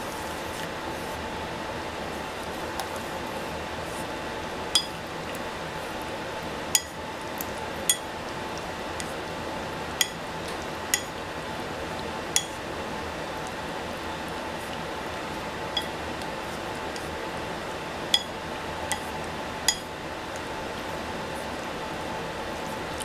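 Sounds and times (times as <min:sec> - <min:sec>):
steady background hum: 0:00.0 - 0:23.0
utensil clinking against dish: 0:07.9 - 0:08.1, 0:10.0 - 0:11.2, 0:15.8 - 0:16.0, 0:18.1 - 0:19.1.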